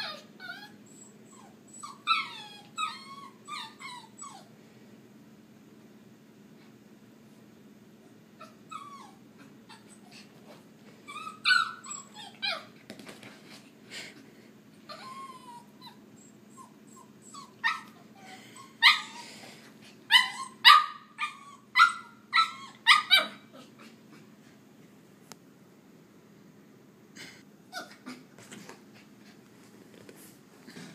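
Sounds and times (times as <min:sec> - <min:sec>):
puppy whining: 0:00.0 - 0:04.5, 0:08.4 - 0:13.0, 0:14.8 - 0:24.3, 0:27.7 - 0:29.4
puppy yapping barks: 0:20.2 - 0:23.4.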